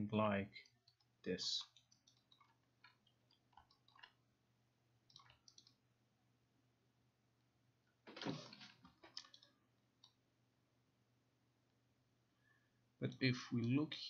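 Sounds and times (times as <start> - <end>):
computer mouse clicks: 0.6 - 4.2, 5.1 - 5.8, 8.2 - 10.2.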